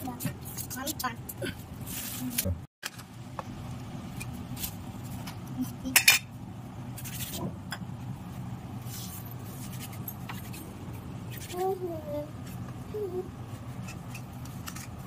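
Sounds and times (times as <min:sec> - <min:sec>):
steady low hum: 0:00.0 - 0:15.0
utensils clinking on steel plate: 0:05.9 - 0:06.3.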